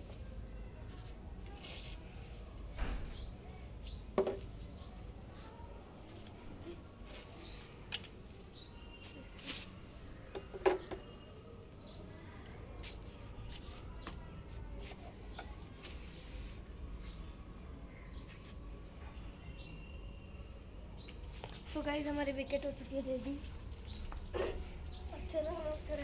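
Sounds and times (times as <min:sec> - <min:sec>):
hollow plastic knocks and clicks: 0:04.2 - 0:04.4, 0:10.4 - 0:11.1.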